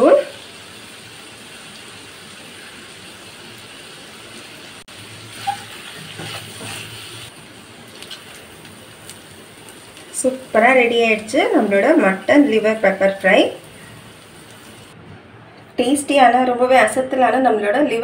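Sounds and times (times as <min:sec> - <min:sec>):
liver sizzling in a wok: 0:00.0 - 0:15.0
spatula scraping a pan: 0:05.3 - 0:07.3.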